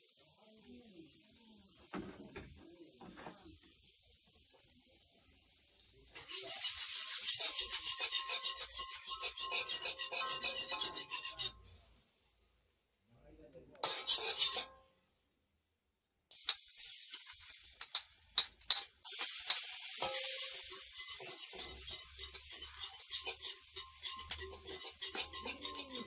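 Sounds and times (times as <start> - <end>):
frying in hot oil sizzling: 0.0 - 12.3, 13.8 - 14.7, 16.3 - 26.0
spatula clinking against wok: 6.2 - 11.6, 13.8 - 14.8, 17.8 - 26.0
metal spatula scraping a wok: 6.2 - 11.7, 13.8 - 14.8, 16.4 - 18.1, 18.8 - 26.0.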